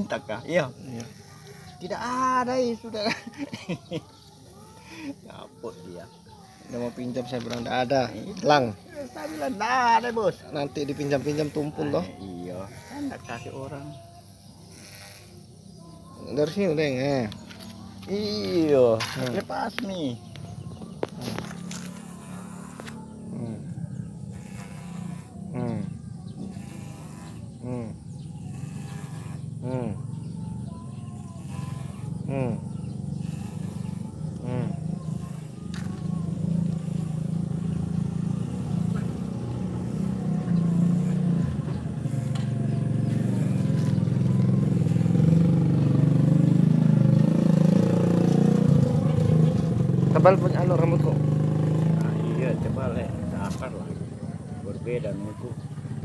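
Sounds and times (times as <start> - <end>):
electric hair clipper buzzing: 0.0 - 5.0, 6.2 - 30.2, 31.0 - 53.6
animal calling: 6.0 - 16.1.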